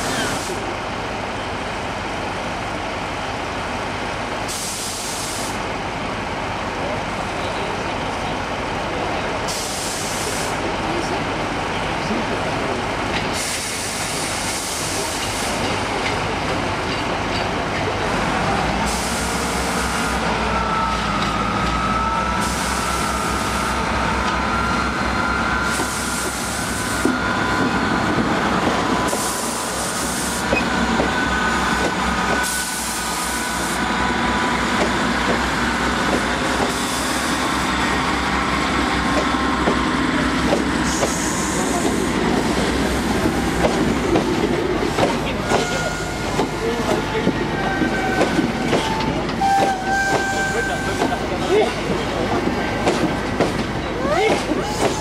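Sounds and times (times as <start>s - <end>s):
train coaches rolling by: 0.0s - 55.0s
train diesel engine rumbling: 0.0s - 55.0s
high brake squeal: 45.5s - 46.4s.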